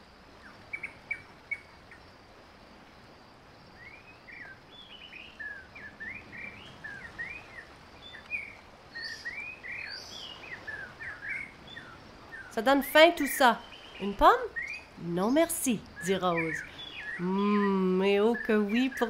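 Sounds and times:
small birds chirping: 3.8s - 19.0s.

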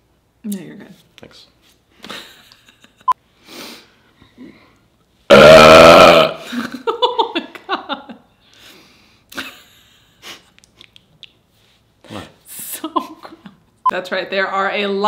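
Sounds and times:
person burping: 5.3s - 6.7s.

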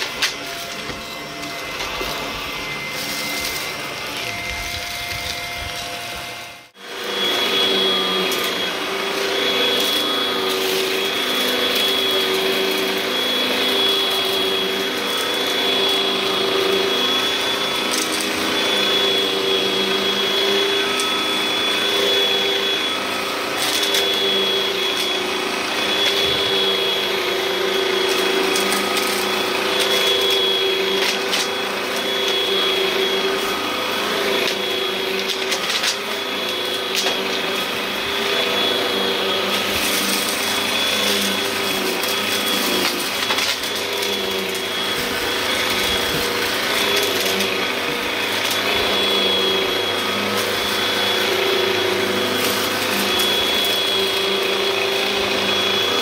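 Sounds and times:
another vacuum cleaner: 0.0s - 56.0s
vacuum cleaner running on carpet: 0.0s - 56.0s.

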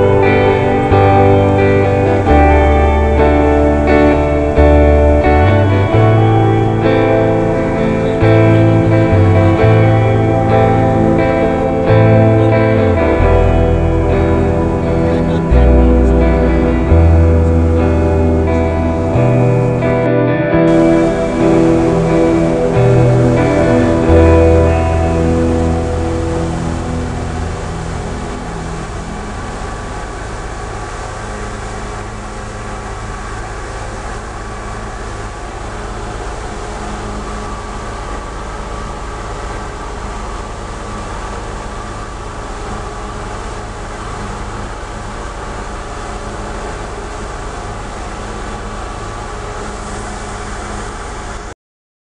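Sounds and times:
guitar music: 0.0s - 30.4s
faint steady tones: 0.0s - 51.5s
rushing water and wake: 0.0s - 51.5s
boat engine drone: 0.0s - 51.6s.

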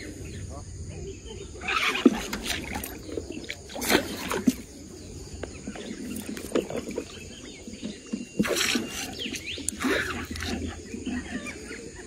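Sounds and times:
fish splashing in water: 1.6s - 5.0s, 5.6s - 11.7s.

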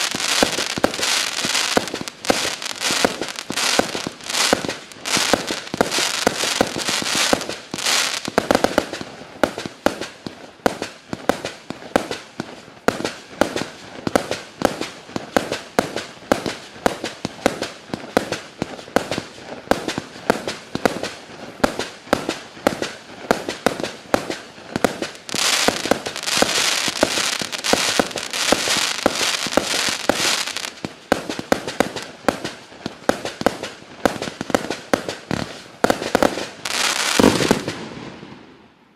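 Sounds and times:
firework star bursts: 0.0s - 38.6s
firework cake shots firing: 19.8s - 38.1s.

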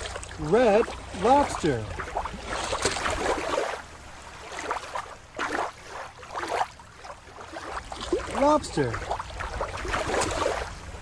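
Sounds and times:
water gurgling splashes: 0.0s - 11.0s
water lapping at shoreline: 0.0s - 11.0s.

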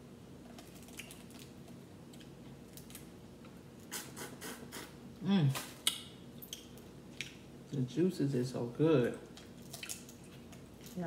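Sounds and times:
person humming mm: 3.9s - 5.6s.

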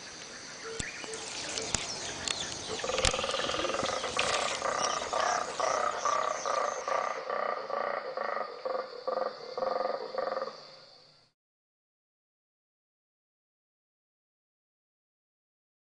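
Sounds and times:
birds chirping: 0.6s - 7.1s
monkey roaring croaking pulses: 2.6s - 8.5s.

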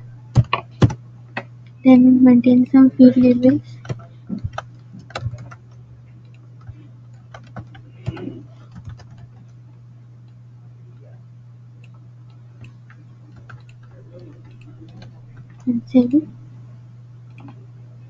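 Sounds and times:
low hum: 0.0s - 18.0s
keyboard typing: 3.1s - 9.6s, 11.8s - 16.3s, 17.3s - 17.6s.

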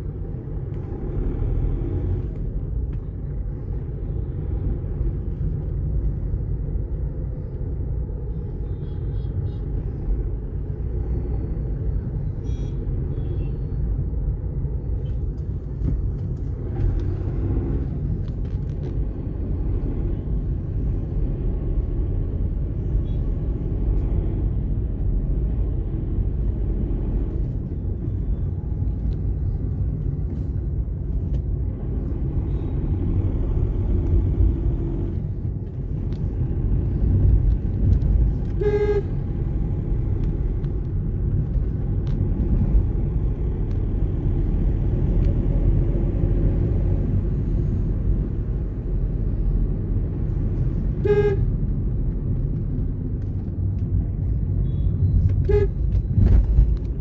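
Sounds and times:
car engine and road noise: 0.0s - 57.0s
short car horn toot: 38.6s - 39.1s, 51.0s - 51.4s.

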